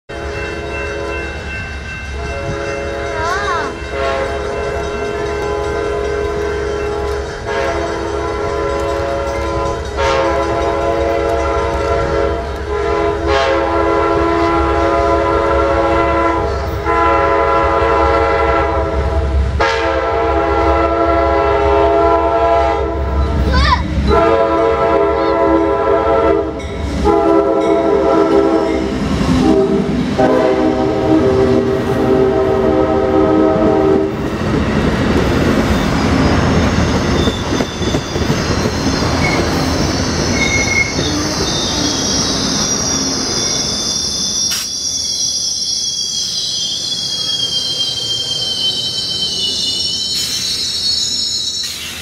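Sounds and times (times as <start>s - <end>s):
locomotive air horn blasts: 0.1s - 1.3s, 2.2s - 3.3s, 3.9s - 23.2s, 24.1s - 34.2s
train rumbling and clattering past: 0.1s - 52.0s.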